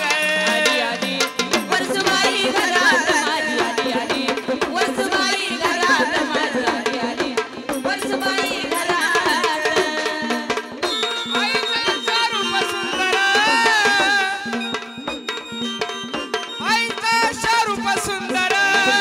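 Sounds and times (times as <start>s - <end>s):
drums fast rhythm: 0.0s - 19.0s
wavering melody line: 10.8s - 18.0s.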